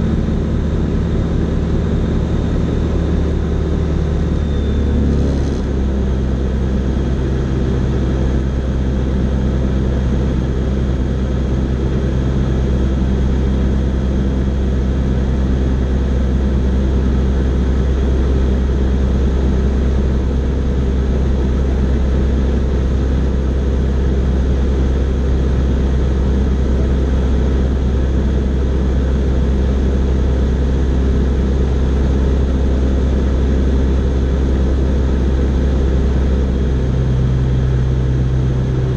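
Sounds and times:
aircraft engine and propeller droning: 0.0 - 38.9.

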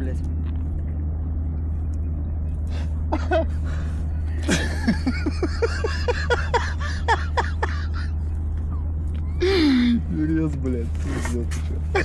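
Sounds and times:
steady low rumble: 0.0 - 12.0
person laughing: 4.4 - 8.2.

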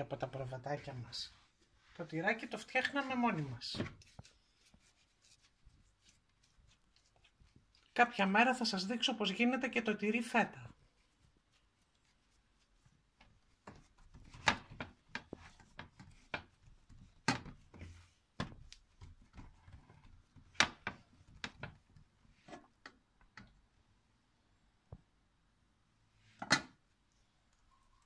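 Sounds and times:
hands patting dough: 2.3 - 23.2.

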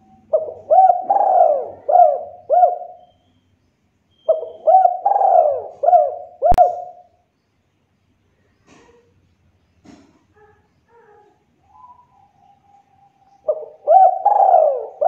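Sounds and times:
dove cooing: 0.0 - 3.2, 4.3 - 7.1, 11.6 - 15.0.

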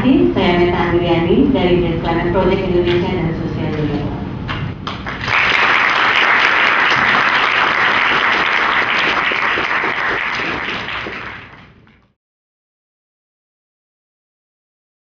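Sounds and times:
audience applauding: 4.9 - 11.8.

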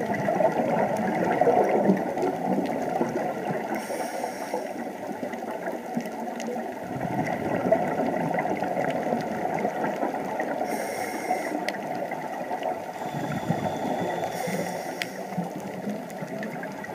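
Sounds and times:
muffled underwater rushing water: 0.0 - 16.9
brief hiss: 10.7 - 11.6, 13.8 - 15.4.

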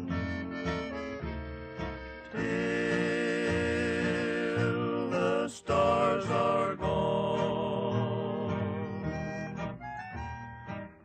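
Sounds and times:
song with singing voice: 0.0 - 1.0, 2.2 - 9.8.

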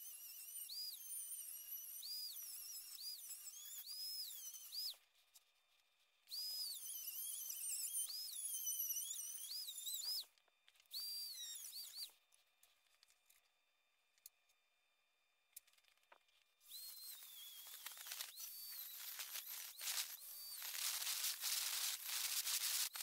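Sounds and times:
rotary tool cutting metal: 0.0 - 5.0, 6.3 - 10.2, 16.6 - 23.0.

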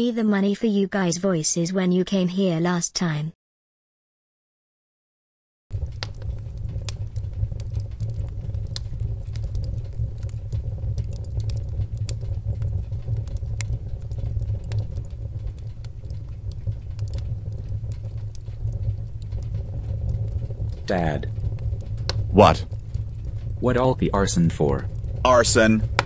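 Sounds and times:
fire crackles and pops: 5.7 - 26.0
fire rumbling: 5.7 - 26.0.

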